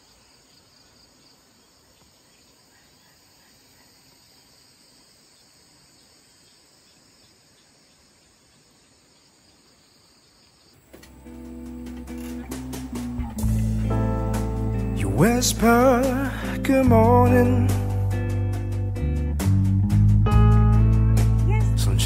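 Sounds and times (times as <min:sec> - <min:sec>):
high-pitched insect chorus: 0:00.0 - 0:18.1
loud guitar music: 0:10.9 - 0:22.0.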